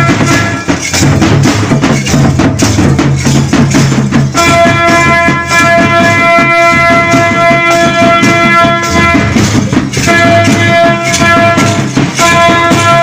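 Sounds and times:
held high melody tone: 0.0 - 13.0
rattling percussion: 0.0 - 13.0
steady drumming: 0.0 - 13.0.

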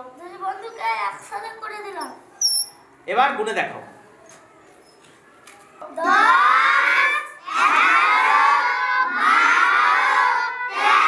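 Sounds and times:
children chanting in unison: 5.9 - 11.0.

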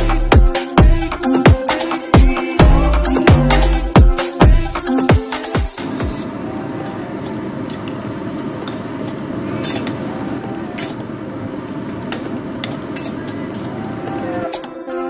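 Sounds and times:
metal spoon clinking against pot: 8.7 - 11.0, 11.9 - 13.8.

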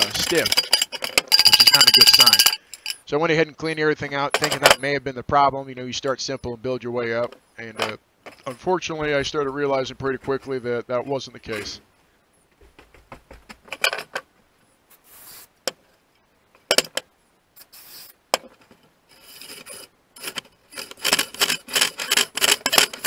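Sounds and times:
hand rubbing and scraping metal parts: 0.0 - 4.9, 14.9 - 16.0, 16.6 - 23.0.

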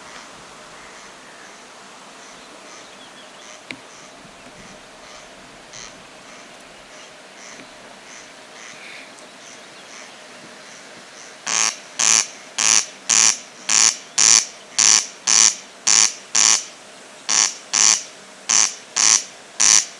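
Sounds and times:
corncrake rasping call: 0.0 - 19.9.

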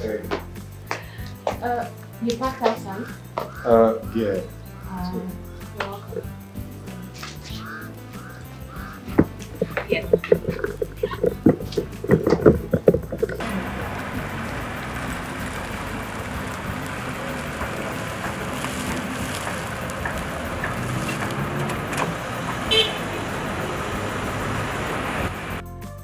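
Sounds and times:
car engine and tyres on tarmac: 4.5 - 25.7
car horn toot: 13.4 - 25.6.

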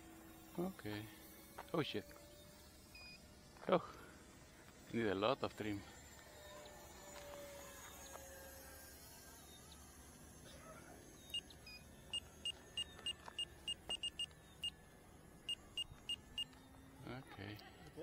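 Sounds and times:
short high-pitched beeps: 11.3 - 14.3.

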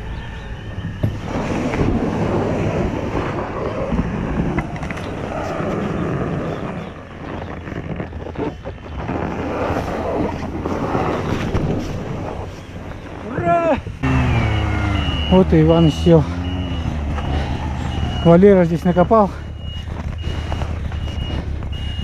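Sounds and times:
wind on microphone: 0.0 - 14.0
snowmobile engine running: 9.2 - 22.0.

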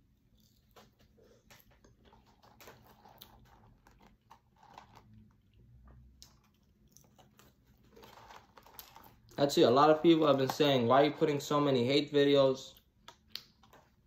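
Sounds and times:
chewing french fries: 0.0 - 9.5
paper carton rustling: 0.8 - 5.2, 7.2 - 10.9.

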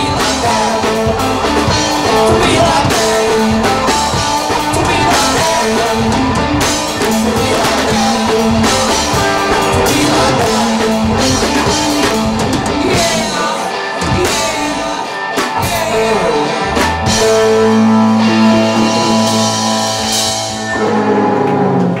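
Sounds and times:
man singing: 0.0 - 20.1
live rock band: 0.0 - 22.0.

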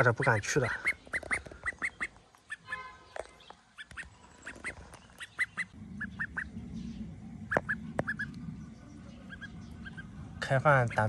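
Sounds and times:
duck quacking: 0.0 - 2.9, 3.8 - 6.5, 7.5 - 8.3, 9.2 - 10.1
low steady hum: 4.0 - 11.0.

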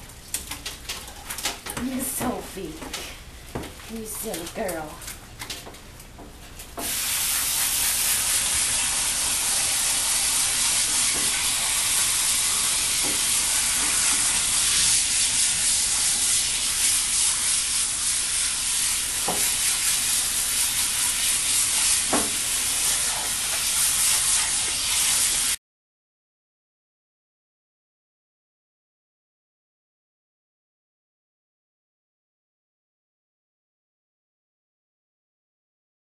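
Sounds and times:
hose sprayer hissing on dog: 1.7 - 3.2, 3.9 - 5.0, 6.7 - 25.6.

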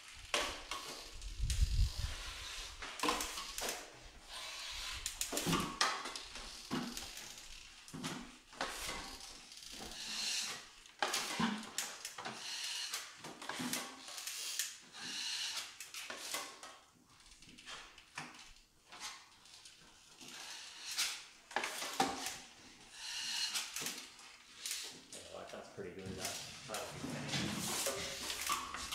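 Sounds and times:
trowel scraping joint compound: 26.1 - 28.9.

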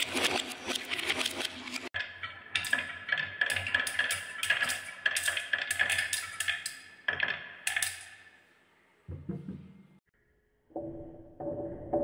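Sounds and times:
marbles clacking on wooden tracks: 0.0 - 8.2.

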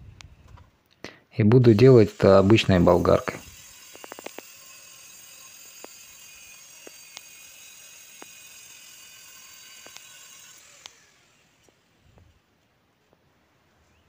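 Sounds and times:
angle grinder whine: 1.6 - 12.0
sharp ticks: 3.8 - 9.0, 9.7 - 10.2.

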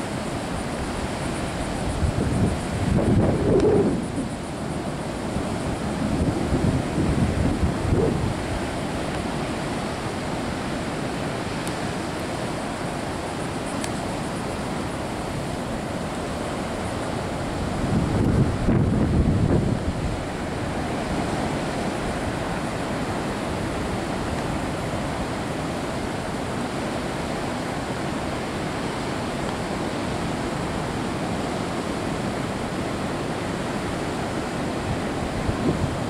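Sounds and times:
surf breaking on beach: 0.0 - 36.0
wind buffeting microphone: 1.7 - 9.4, 17.4 - 22.4, 34.9 - 36.0.

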